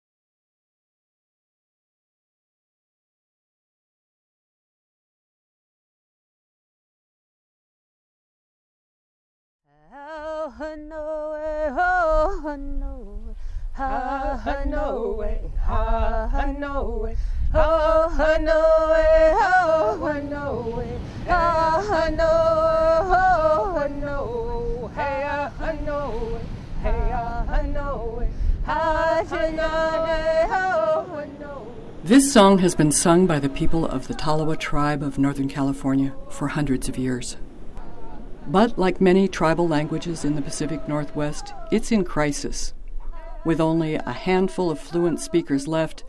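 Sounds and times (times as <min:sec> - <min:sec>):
person singing unaccompanied: 0:09.7 - 0:46.0.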